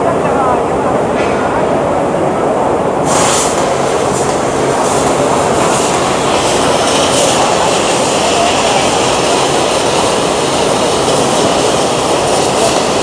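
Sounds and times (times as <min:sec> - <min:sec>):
high hiss bursts: 0:03.0 - 0:13.0
laser cutter rushing noise: 0:03.0 - 0:13.0.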